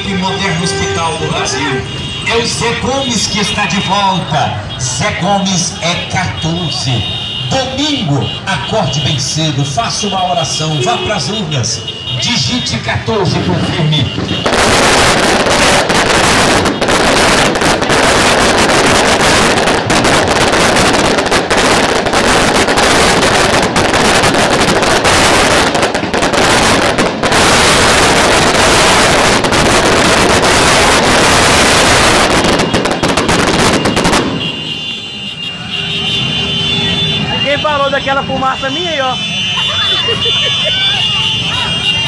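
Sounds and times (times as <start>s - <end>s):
firecrackers crackling: 10.4s - 42.0s.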